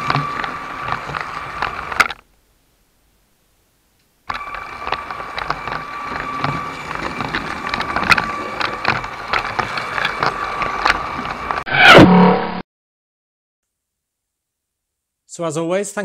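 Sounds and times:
toy train wheels clattering on track: 0:00.0 - 0:02.2, 0:04.3 - 0:11.6
electric motor whine: 0:00.0 - 0:02.3, 0:04.2 - 0:12.6.

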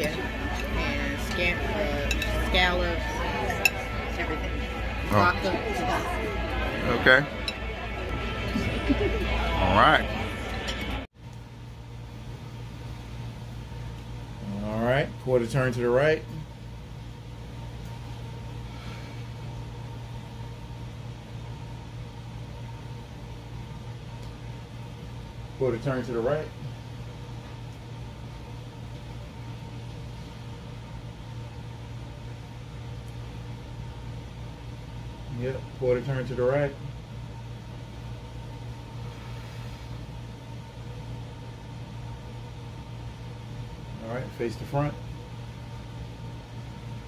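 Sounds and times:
air conditioner humming: 0:00.0 - 0:47.0.

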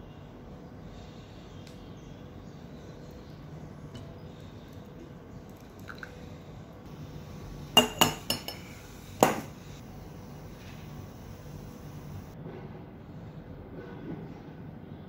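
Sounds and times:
hot water pouring into filter: 0:05.6 - 0:06.2.

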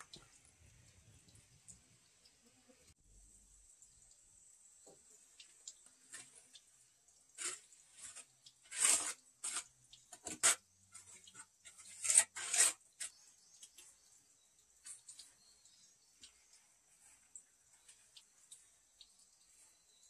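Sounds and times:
faint steady high hiss: 0:00.0 - 0:11.7, 0:12.9 - 0:20.0
bricks and mortar scraping: 0:07.3 - 0:13.5.

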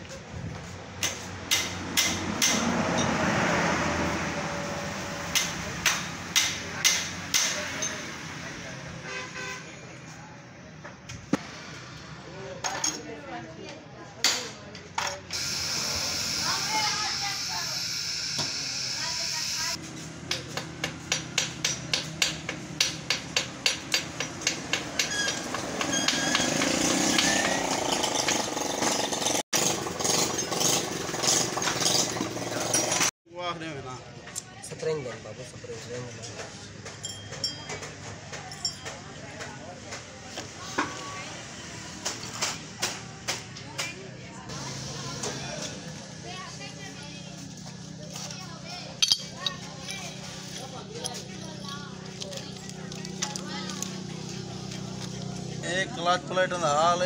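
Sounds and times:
engine running: 0:44.5 - 0:56.4.

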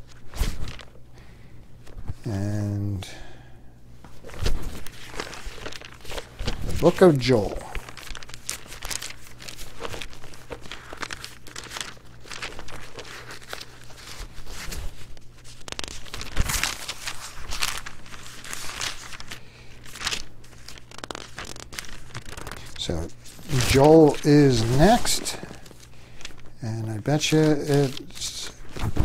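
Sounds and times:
thin pages rustling: 0:00.0 - 0:01.0, 0:04.0 - 0:29.0.

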